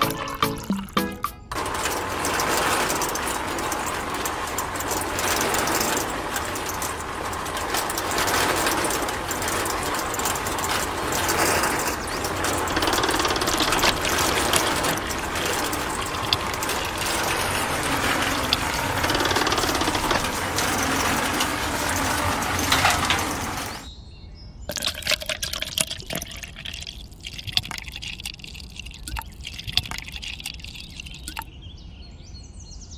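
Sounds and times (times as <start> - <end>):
small electric motor rattling whir: 1.5 - 23.9
sharp gear clicks: 2.3 - 22.4.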